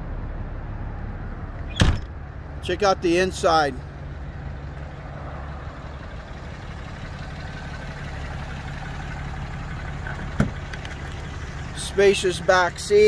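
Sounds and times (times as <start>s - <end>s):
truck engine idling: 0.0s - 13.0s.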